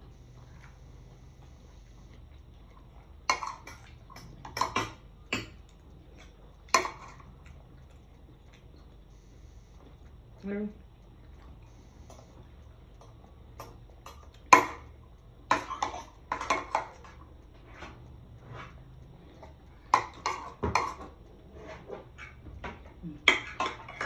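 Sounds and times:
metal spoon scraping a plate: 0:19.9 - 0:22.4.

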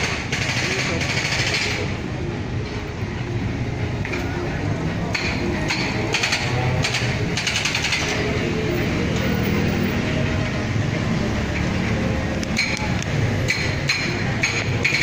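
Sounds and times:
rapid mechanical hammering: 0:00.0 - 0:02.0, 0:05.1 - 0:08.3, 0:13.4 - 0:15.0
road traffic engine rumble: 0:00.0 - 0:15.0.

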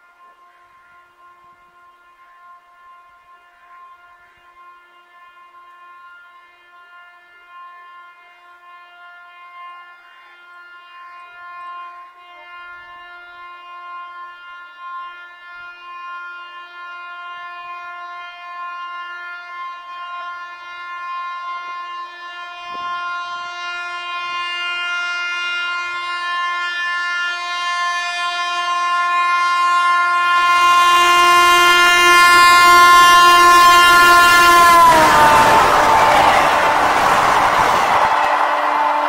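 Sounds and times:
locomotive horn blast: 0:00.0 - 0:39.0
rushing noise of passing train: 0:32.3 - 0:39.0.

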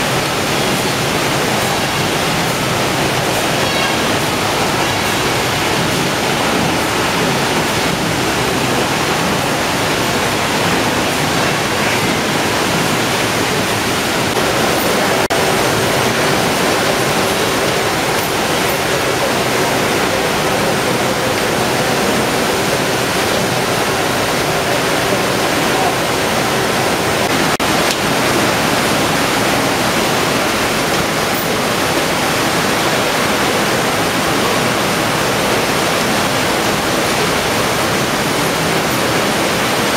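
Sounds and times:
conveyor machinery running: 0:00.0 - 0:39.9
wash water splashing: 0:00.0 - 0:39.9.

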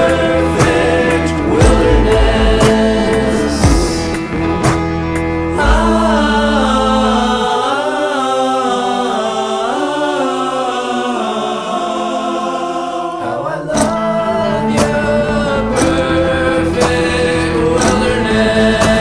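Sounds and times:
low bass: 0:00.0 - 0:07.5
song with sustained vocals: 0:00.0 - 0:19.0.

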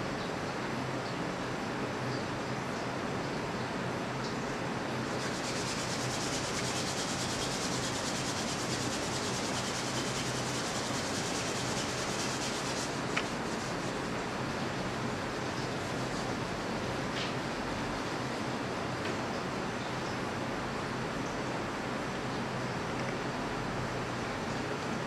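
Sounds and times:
tape hiss: 0:01.1 - 0:25.0
palms rubbing together: 0:05.2 - 0:14.2.

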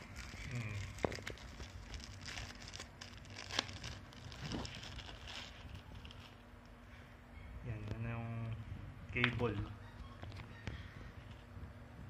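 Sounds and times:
wrapper crinkling: 0:00.0 - 0:06.6.

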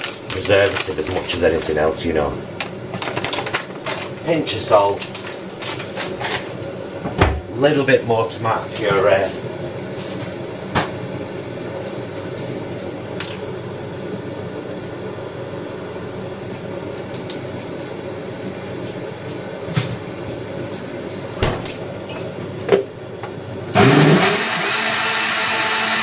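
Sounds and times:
blender whirring: 0:23.7 - 0:26.0.

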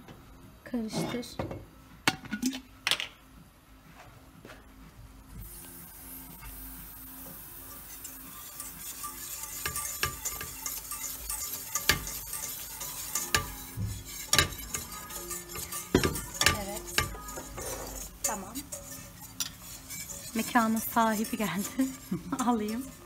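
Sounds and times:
roux sizzling: 0:05.4 - 0:23.0
whisk scraping a metal pot: 0:07.6 - 0:23.0.

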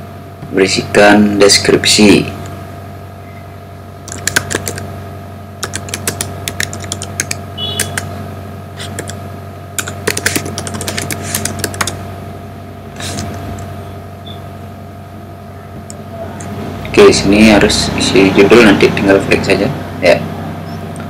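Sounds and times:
steady low hum: 0:00.0 - 0:21.0
typing on keyboard: 0:04.1 - 0:04.8, 0:05.6 - 0:08.1, 0:08.8 - 0:09.2, 0:09.8 - 0:12.0.

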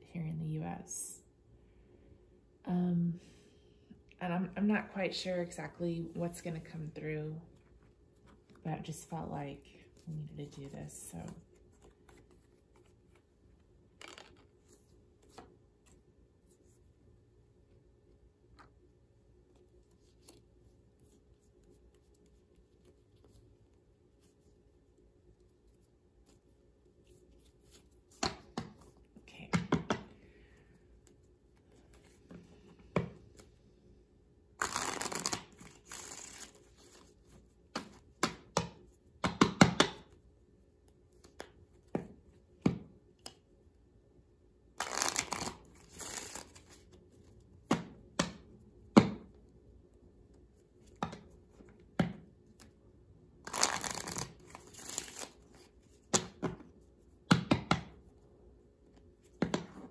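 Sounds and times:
playing cards shuffling: 0:09.8 - 0:16.6, 0:19.5 - 0:24.5, 0:34.6 - 0:39.0, 0:44.8 - 0:48.4, 0:53.4 - 0:56.8
cards clicking and tapping: 0:14.0 - 0:14.5, 0:28.1 - 0:30.2, 0:37.7 - 0:40.2, 0:57.3 - 0:58.0.

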